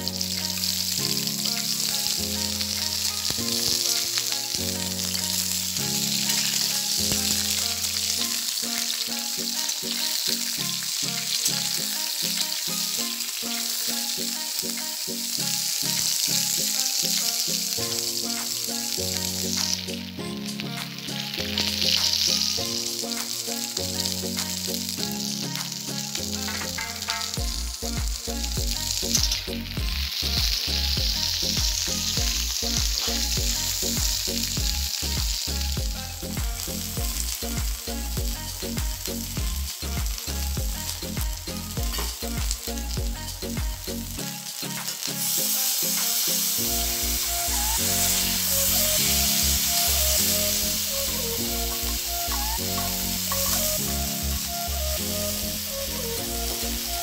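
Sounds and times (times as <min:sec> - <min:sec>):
simple background melody: 0:00.0 - 0:57.0
vegetables sizzling in a pan: 0:00.0 - 0:57.0
metal spatula scraping: 0:26.3 - 0:27.4, 0:51.7 - 0:53.8.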